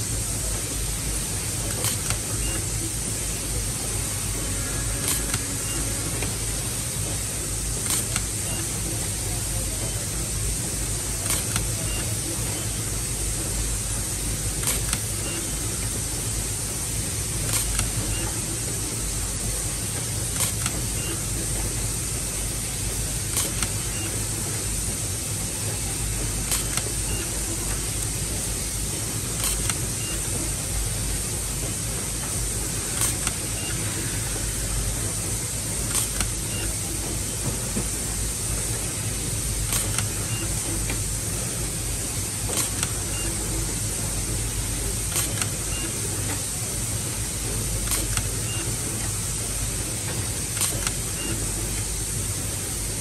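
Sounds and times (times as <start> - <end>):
low machine hum: 0.0 - 53.0
cable tie machine clicks: 35.9 - 36.3, 39.7 - 40.2, 45.1 - 45.6, 50.6 - 51.4.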